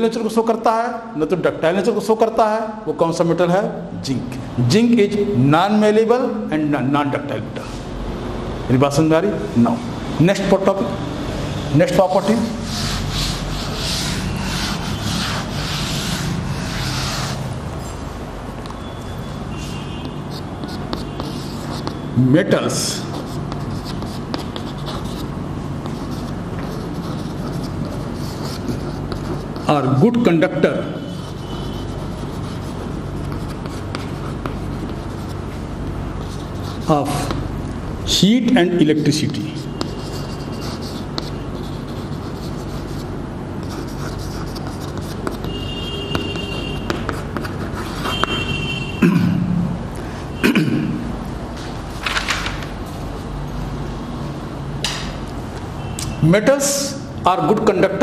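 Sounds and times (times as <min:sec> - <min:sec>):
low background hum: 0:01.0 - 0:58.0
chalk scratching on blackboard: 0:11.9 - 0:17.6, 0:19.5 - 0:30.2, 0:30.8 - 0:37.4, 0:39.1 - 0:48.8.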